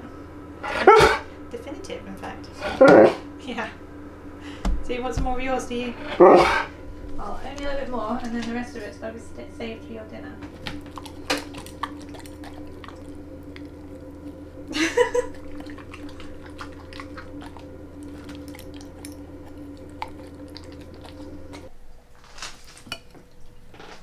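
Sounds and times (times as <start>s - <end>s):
dog rising vocal sound: 6.0s - 6.8s
dog chewing meat: 10.5s - 21.7s.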